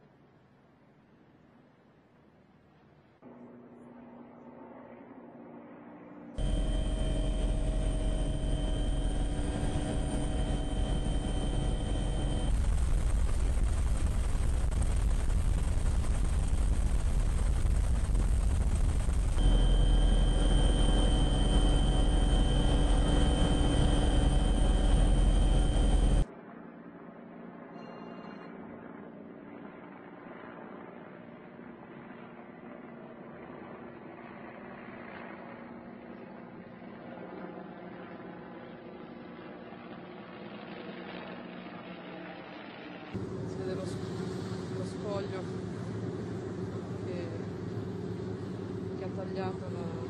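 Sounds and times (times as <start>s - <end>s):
steady whining tones: 3.2s - 26.3s, 41.9s - 50.0s
aircraft engine noise on board: 3.2s - 50.0s.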